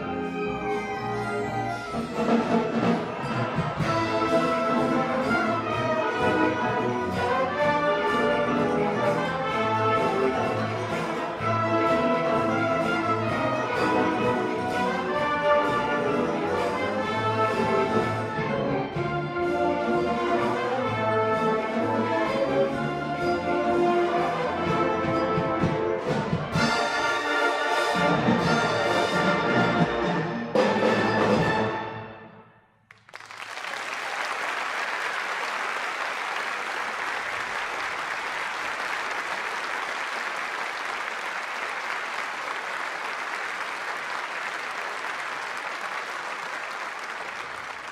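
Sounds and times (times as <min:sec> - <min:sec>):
concert band playing: 0:00.0 - 0:32.1
audience applause: 0:01.6 - 0:18.2, 0:32.9 - 0:47.9.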